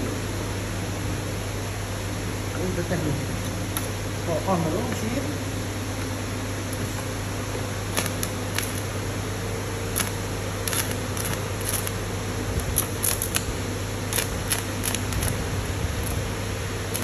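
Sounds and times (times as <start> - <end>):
welding machine hum: 0.0 - 17.0
welding arc crackling and popping: 6.0 - 17.0.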